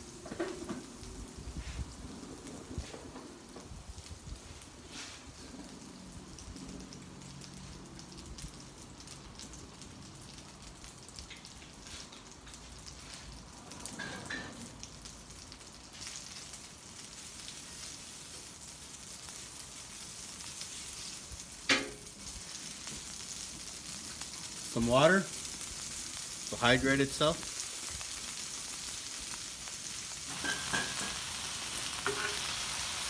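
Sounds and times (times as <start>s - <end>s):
noodles sizzling on griddle: 0.0s - 33.0s
metal spatula scraping griddle: 32.0s - 32.5s.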